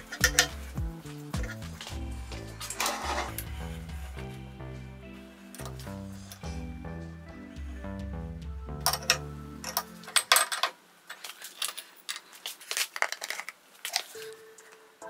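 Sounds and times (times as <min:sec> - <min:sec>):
background music: 0:00.0 - 0:10.6, 0:14.2 - 0:15.0.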